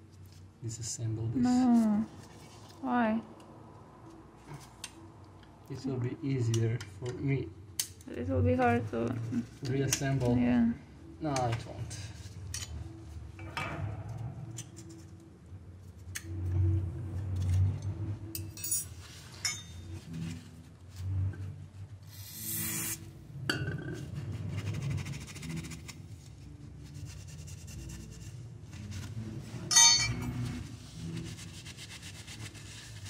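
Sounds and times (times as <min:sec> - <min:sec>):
paper towel rubbing metal: 0:24.2 - 0:29.6, 0:30.4 - 0:33.0.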